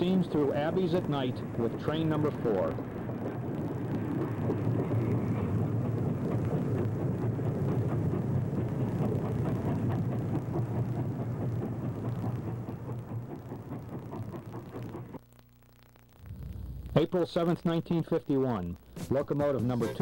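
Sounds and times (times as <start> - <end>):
steam locomotive passing: 0.0 - 15.2.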